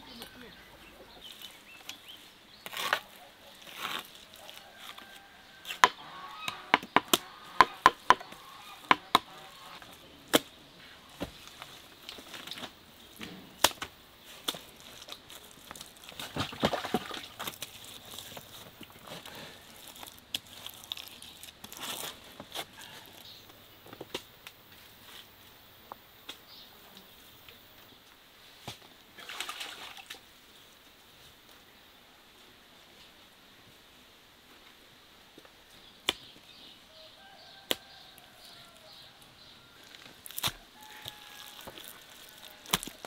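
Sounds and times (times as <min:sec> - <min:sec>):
mud scraping and rustling: 0:00.1 - 0:25.3, 0:39.7 - 0:43.0.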